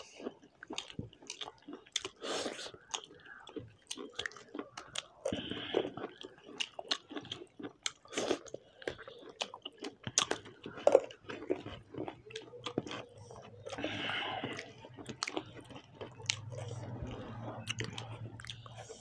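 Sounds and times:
people chewing food: 0.0 - 19.0
faint low hum: 10.6 - 19.0.

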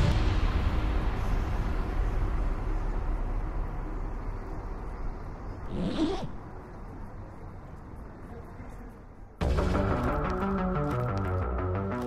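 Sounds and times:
low rumbling noise: 0.0 - 8.2.

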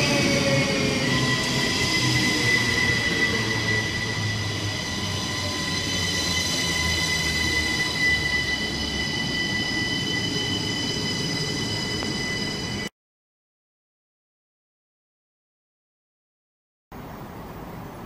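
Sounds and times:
train wheels squealing: 0.0 - 12.9.

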